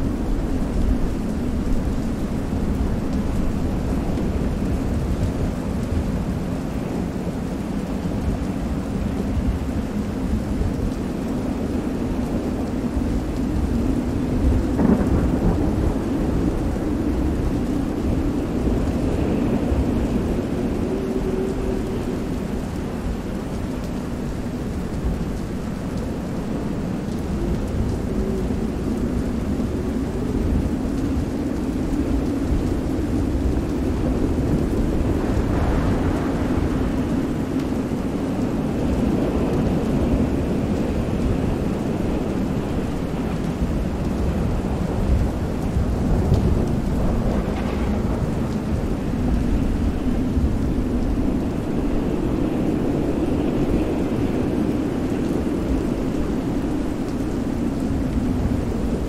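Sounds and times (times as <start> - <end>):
heavy rain: 0.0 - 59.0
wind: 0.0 - 59.0
deep rolling thunder: 13.6 - 21.9, 31.6 - 55.9.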